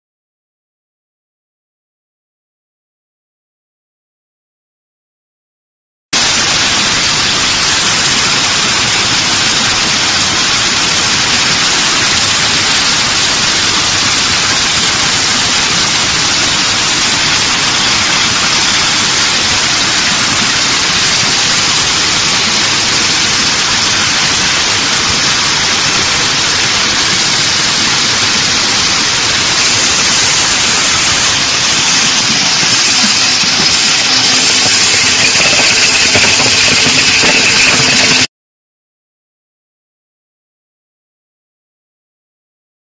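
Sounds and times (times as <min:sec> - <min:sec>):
machinery hissing: 0:06.2 - 0:38.3.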